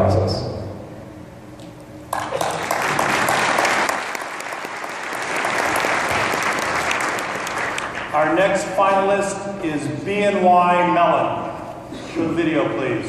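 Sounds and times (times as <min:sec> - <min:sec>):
crowd applauding: 0:02.1 - 0:08.4.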